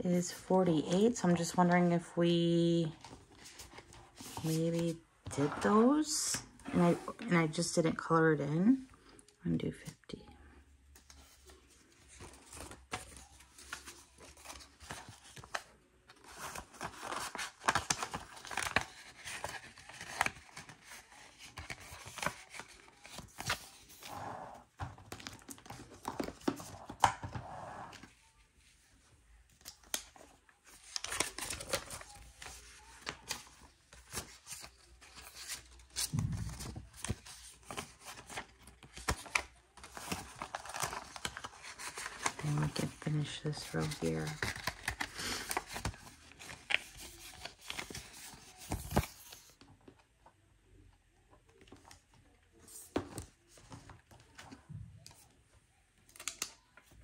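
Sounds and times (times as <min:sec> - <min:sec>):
paper rustling and crinkling: 0:11.0 - 0:24.1, 0:24.8 - 0:28.4, 0:29.5 - 0:50.0.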